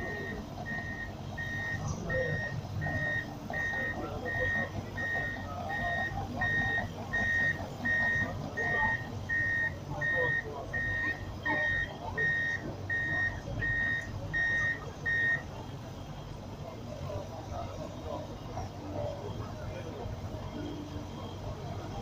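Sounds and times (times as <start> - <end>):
backup alarm beeping: 0.0 - 15.5
diesel engine rumble: 0.0 - 22.0.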